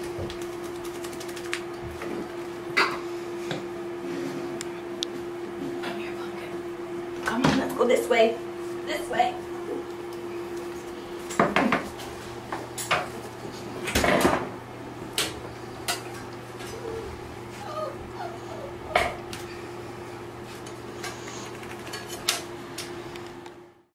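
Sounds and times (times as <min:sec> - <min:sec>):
steady low hum: 0:00.0 - 0:23.9
faint puppy whimpers: 0:16.7 - 0:19.2.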